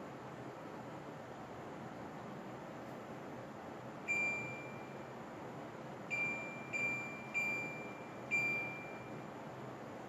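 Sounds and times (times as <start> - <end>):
air conditioner short high beeps: 4.0 - 5.2, 6.0 - 9.4.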